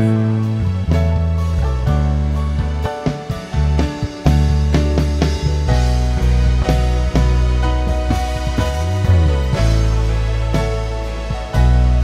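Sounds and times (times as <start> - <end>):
electric bass playing low notes: 0.0 - 12.0.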